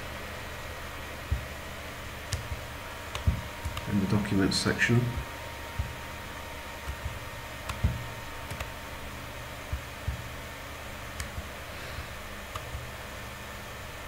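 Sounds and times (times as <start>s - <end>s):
room hiss: 0.0s - 14.0s
computer mouse clicks: 2.3s - 3.9s, 6.8s - 8.7s, 9.7s - 10.3s, 11.2s - 11.5s, 12.5s - 13.0s.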